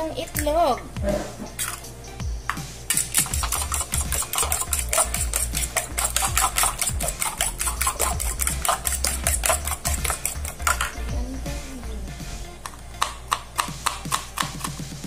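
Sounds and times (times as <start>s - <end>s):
utensil clicking against plastic bowl: 2.5s - 11.0s, 12.6s - 14.8s.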